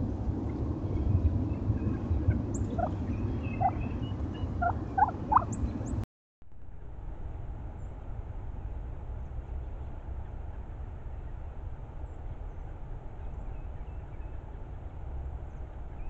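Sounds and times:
steady low rumble: 0.0 - 16.0
turkeys calling: 2.3 - 5.6.

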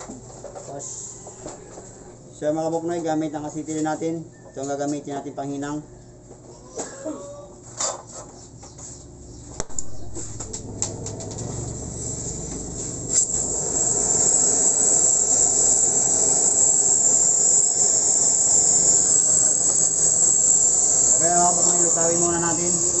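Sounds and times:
torch ignition pop: 9.6 - 11.4
welding torch flame hissing: 11.5 - 23.0.

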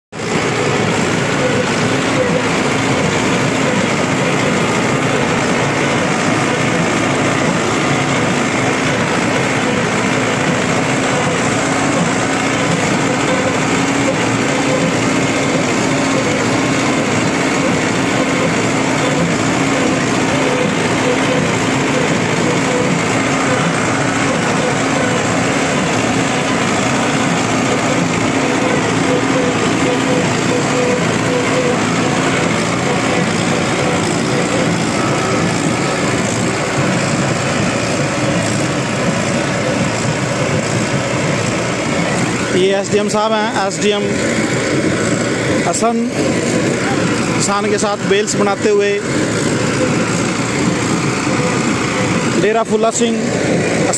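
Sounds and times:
tractor diesel engine droning: 0.1 - 53.9.

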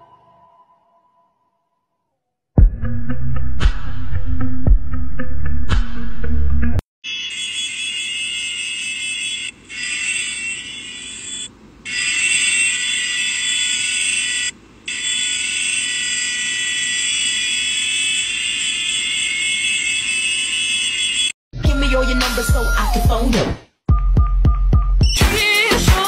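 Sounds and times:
shrill electronic buzzing tone: 7.0 - 23.3.

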